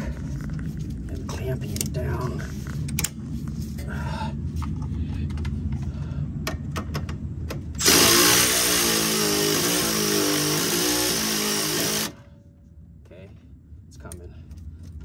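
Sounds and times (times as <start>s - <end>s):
cordless ratchet motor whining: 7.8s - 12.2s.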